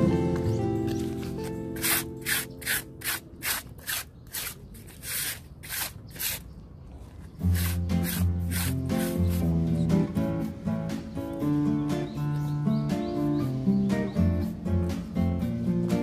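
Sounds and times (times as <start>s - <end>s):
scrubbing on a stone slab: 0.9s - 9.5s.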